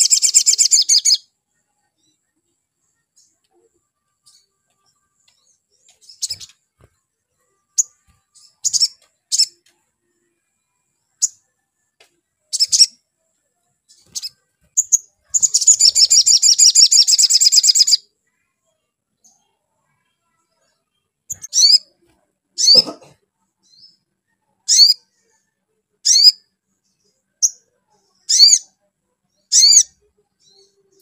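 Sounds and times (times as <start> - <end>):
sunbird high chirps: 0.0 - 1.3, 4.3 - 6.6, 7.7 - 9.6, 12.5 - 13.0, 13.9 - 18.0, 21.3 - 22.0, 24.7 - 25.2, 26.0 - 26.4, 27.4 - 28.7, 29.4 - 31.0.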